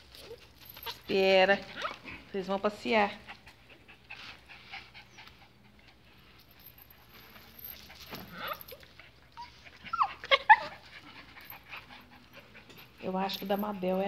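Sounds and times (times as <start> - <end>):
dog yelping: 1.7 - 2.1, 8.2 - 12.2
dog whining: 1.7 - 2.2, 7.7 - 12.4.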